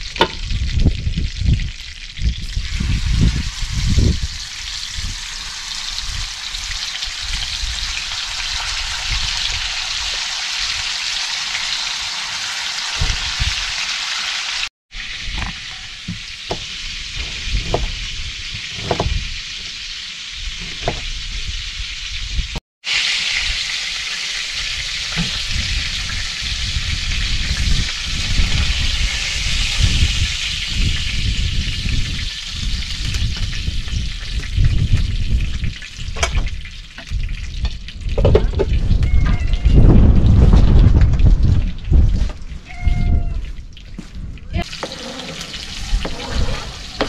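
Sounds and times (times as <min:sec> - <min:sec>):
meat sizzling in a skillet: 0:00.0 - 0:37.9
spatula scraping pans: 0:44.6 - 0:47.0.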